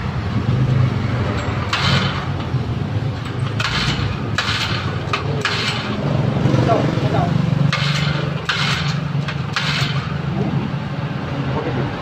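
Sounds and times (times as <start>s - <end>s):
small engine idling: 3.2s - 10.2s.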